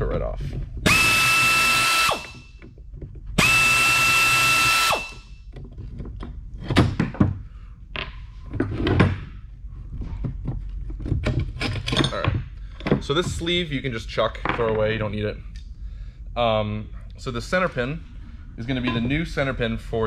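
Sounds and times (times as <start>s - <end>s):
air ratchet whining: 0.8s - 2.7s, 3.4s - 5.4s
metal clanks: 11.0s - 13.5s, 18.7s - 19.4s.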